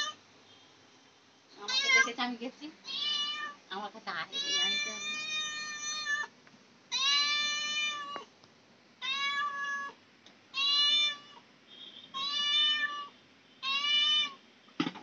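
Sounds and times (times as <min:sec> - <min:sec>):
cat meowing: 0:00.0 - 0:00.2, 0:01.6 - 0:02.1, 0:02.8 - 0:03.6, 0:04.3 - 0:06.3, 0:06.9 - 0:08.3, 0:09.0 - 0:11.4, 0:12.1 - 0:14.4.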